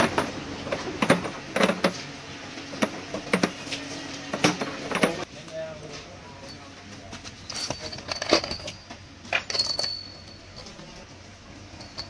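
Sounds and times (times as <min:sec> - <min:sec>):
metal rods clinking together: 0:07.4 - 0:11.1, 0:11.7 - 0:12.0.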